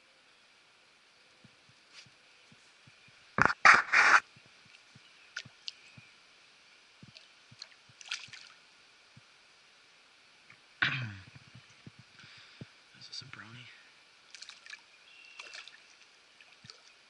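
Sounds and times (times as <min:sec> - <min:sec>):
water dripping: 0:04.4 - 0:06.1, 0:07.0 - 0:09.3, 0:14.2 - 0:17.0
water splashing: 0:07.0 - 0:08.6, 0:14.3 - 0:17.0.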